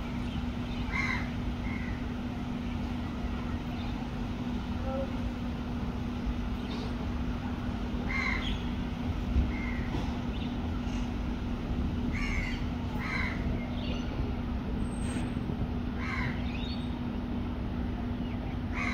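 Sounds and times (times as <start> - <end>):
low hum and rumble: 0.0 - 18.9
crows cawing: 0.9 - 2.0, 8.1 - 8.5, 12.1 - 13.4, 16.0 - 16.4.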